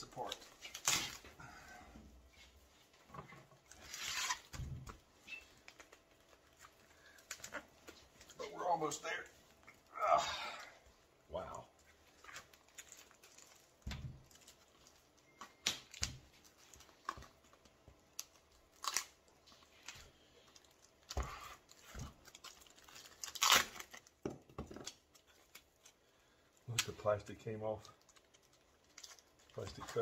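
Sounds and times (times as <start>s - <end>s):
foam tearing by hand: 0.2s - 1.3s, 3.7s - 4.7s, 21.1s - 24.0s.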